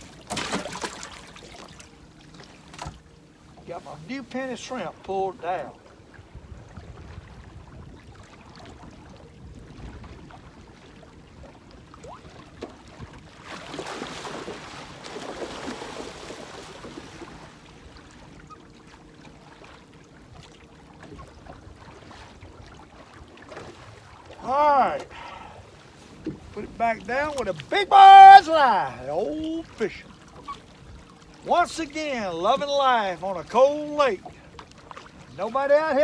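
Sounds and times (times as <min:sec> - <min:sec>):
wind rumbling on microphone: 0:05.8 - 0:17.5.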